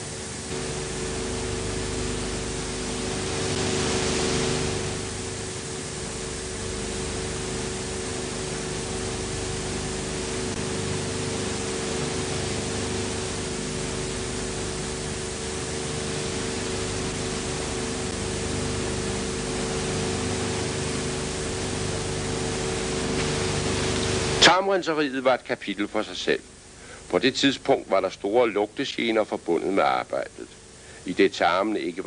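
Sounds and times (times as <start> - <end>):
low hum: 0.0 - 24.4
film soundtrack hiss: 0.0 - 32.0.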